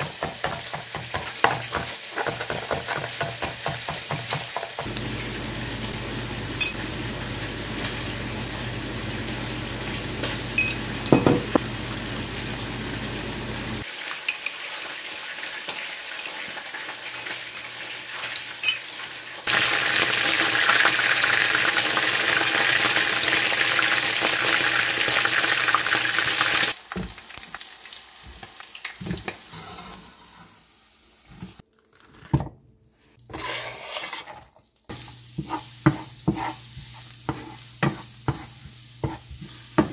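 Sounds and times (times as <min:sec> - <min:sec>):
frying pan sizzling: 0:00.0 - 0:31.6, 0:34.8 - 0:39.9
metal spoon clinking in ramekin: 0:10.6 - 0:11.4, 0:18.3 - 0:18.8
utensils scraping cookware: 0:33.3 - 0:39.9.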